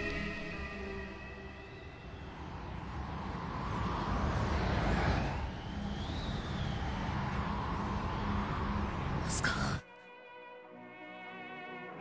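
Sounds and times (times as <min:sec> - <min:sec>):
faint rising and falling whine: 0:00.0 - 0:09.3.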